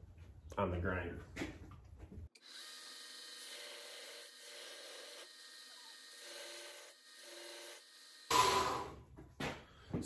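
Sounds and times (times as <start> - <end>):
belt grinder rasping on antler: 2.4 - 8.8.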